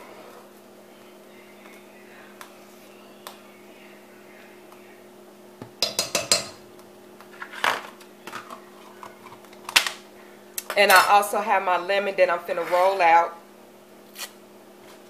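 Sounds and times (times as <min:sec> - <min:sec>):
faint steady hum: 0:00.0 - 0:15.0
metal utensil clinking on pot: 0:05.8 - 0:06.6.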